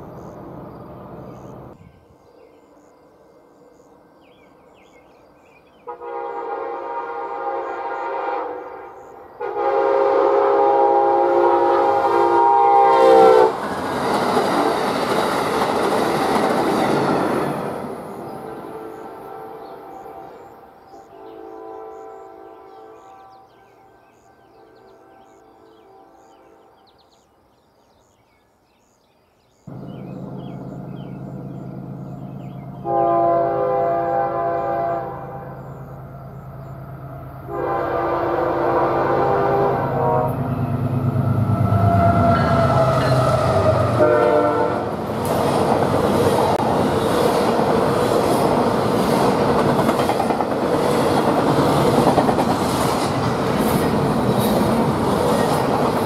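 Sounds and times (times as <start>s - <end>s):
diesel locomotive engine hum: 0.0s - 20.7s, 29.7s - 56.0s
train air horn blasts: 5.9s - 13.6s, 18.6s - 20.5s, 21.1s - 23.6s, 32.7s - 35.8s, 37.5s - 45.0s
train wheels clacking on rails: 13.5s - 17.9s, 44.9s - 56.0s.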